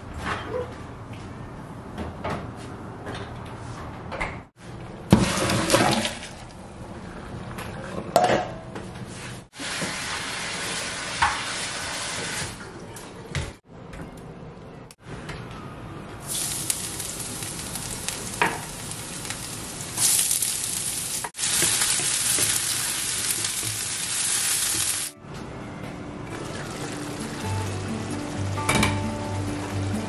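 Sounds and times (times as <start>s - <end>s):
dishes clinking: 28.6s - 29.1s.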